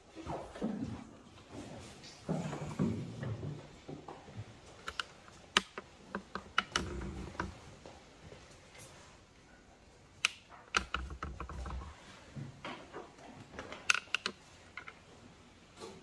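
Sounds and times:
sharp clicks and knocks: 3.3 - 7.6, 10.2 - 12.0, 12.6 - 15.1.

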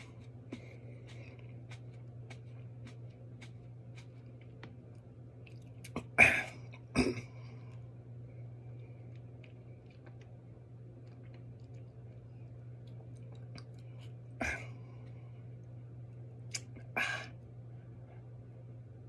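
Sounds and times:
mouth clicks and chewing: 0.0 - 6.1, 12.8 - 14.2, 16.5 - 16.9
steady low hum: 0.0 - 19.0.

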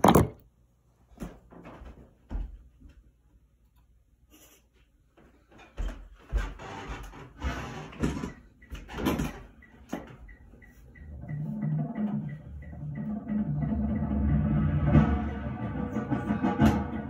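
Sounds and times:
metronome clicks: 8.5 - 14.1
low musical notes: 10.8 - 17.0.

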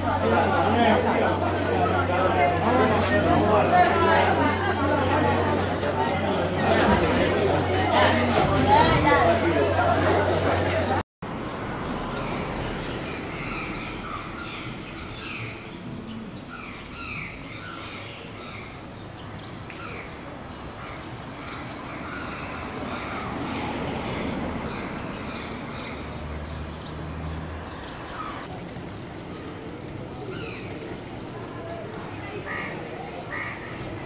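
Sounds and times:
birds chirping and squawking: 11.9 - 26.1, 27.8 - 34.0.

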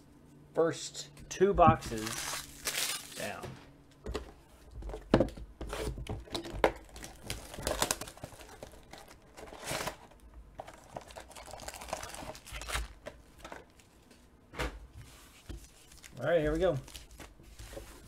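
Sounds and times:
foil packs crinkling: 1.8 - 3.4, 6.3 - 13.9, 15.7 - 17.4.

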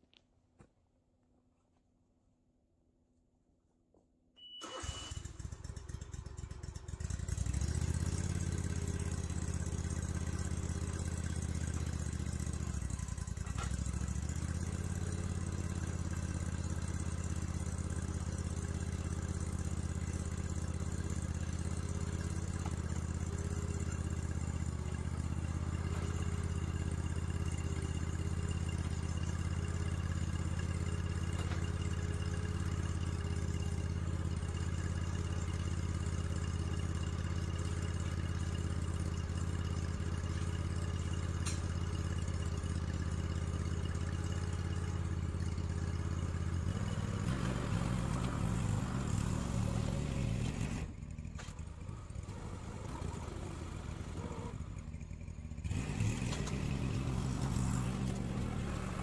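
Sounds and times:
short high beep: 4.4 - 5.3
engine cranking and running: 4.6 - 59.0.

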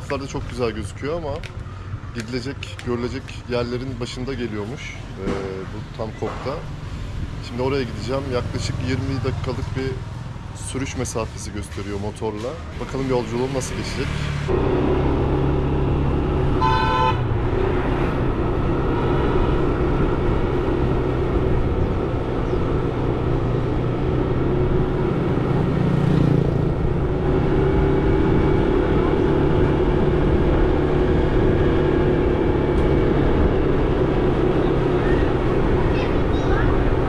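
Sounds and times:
vehicle horn beep: 16.6 - 17.3
motorbike engine running: 19.6 - 37.0.

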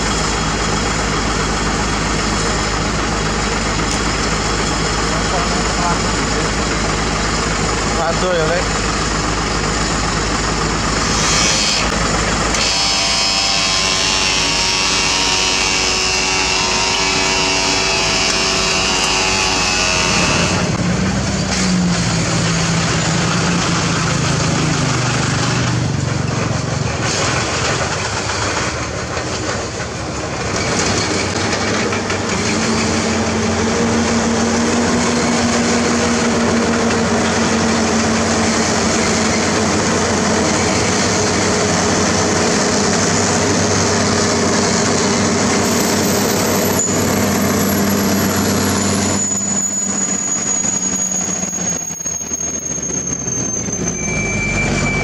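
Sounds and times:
truck diesel engine labouring: 0.0 - 55.0
thin high whine: 44.9 - 55.0.

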